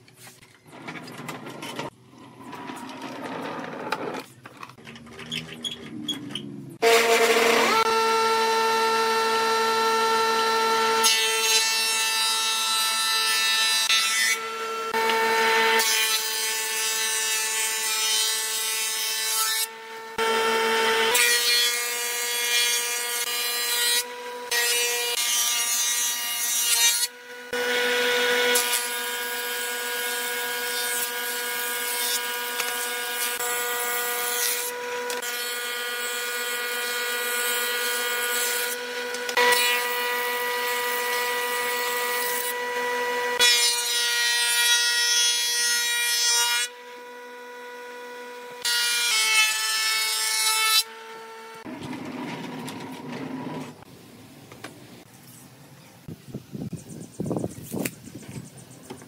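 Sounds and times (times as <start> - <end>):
planer whining while planing boards: 6.8 - 53.9.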